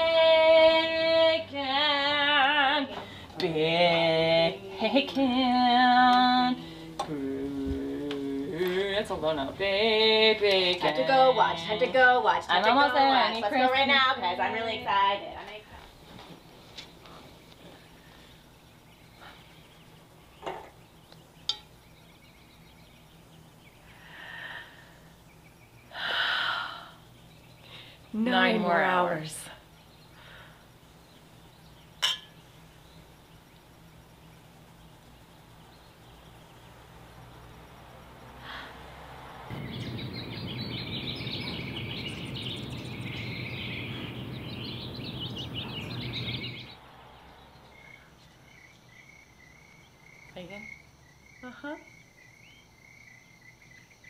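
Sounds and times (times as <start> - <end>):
breathy exhalations: 6.6 - 7.0, 8.4 - 9.0, 23.9 - 25.1, 25.9 - 27.0, 27.6 - 28.1, 30.1 - 30.7, 38.4 - 39.1
dense bird chirping: 16.0 - 54.0
wine glass clink: 32.0 - 32.4
steady rushing noise: 38.4 - 47.7
faint high chirps: 39.5 - 50.6.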